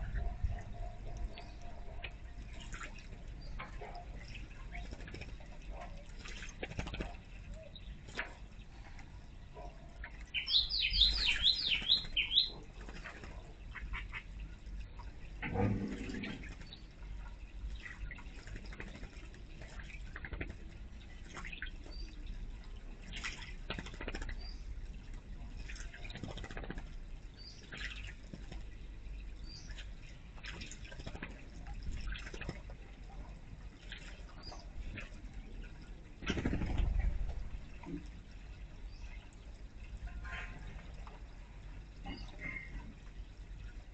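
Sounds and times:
fountain water trickling: 0.0s - 43.9s
bird splashing in water: 2.0s - 8.5s, 10.0s - 22.3s, 23.0s - 28.8s, 29.6s - 32.9s, 33.7s - 38.1s
bird whistling call: 10.4s - 12.5s.

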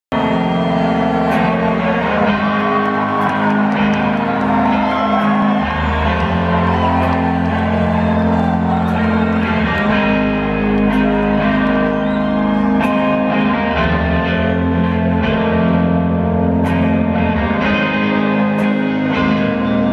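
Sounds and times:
crowd shouting and whooping: 0.1s - 19.9s
electric guitar: 0.1s - 19.9s
low bass notes: 0.1s - 19.9s.

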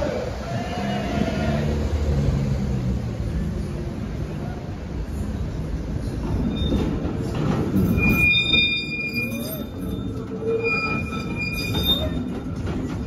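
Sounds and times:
tram rumbling on rails: 0.0s - 13.0s
tram wheels squealing: 5.1s - 13.0s.

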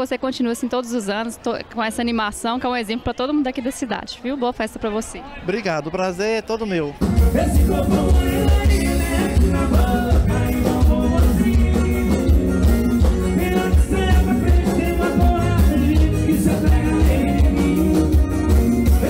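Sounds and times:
drum kit: 7.0s - 19.0s
electric bass: 7.0s - 19.0s
man singing into a microphone: 7.2s - 19.0s.

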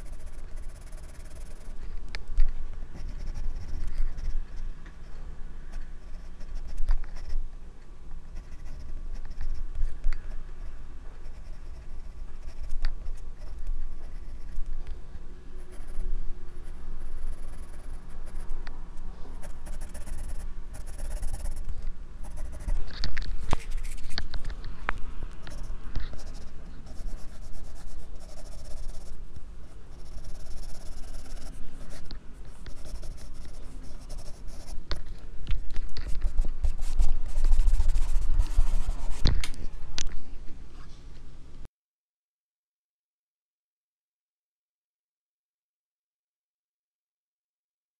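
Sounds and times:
pencil scratching on paper: 0.0s - 1.9s, 2.9s - 5.1s, 5.7s - 7.4s, 8.3s - 10.0s, 11.2s - 14.7s, 15.6s - 18.6s, 19.3s - 24.5s, 25.4s - 34.9s, 35.8s - 39.4s
microphone rubbing rumble: 30.0s - 40.6s.

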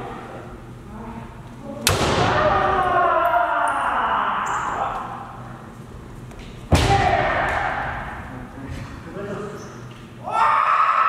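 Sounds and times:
long drawn-out shout: 2.4s - 5.3s, 10.2s - 11.0s.

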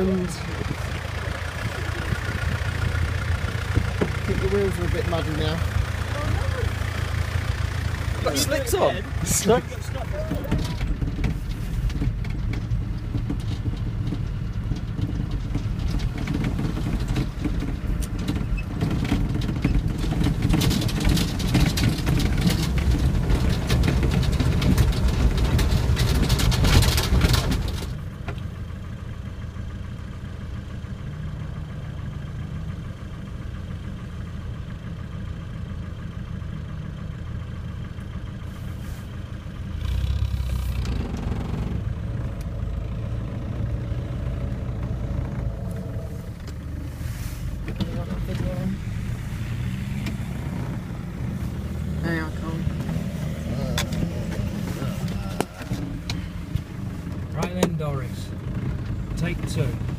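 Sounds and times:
knocks and rattles: 0.0s - 28.6s, 47.6s - 59.9s
engine idling: 0.0s - 59.9s
off-road vehicle engine under load: 0.0s - 59.9s.

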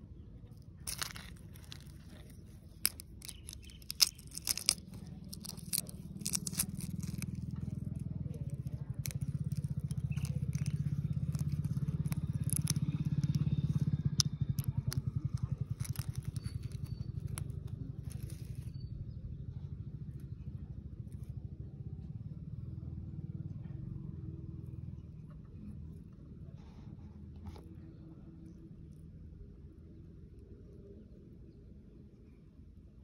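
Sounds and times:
eggshell crackling and scraping: 0.4s - 18.8s.

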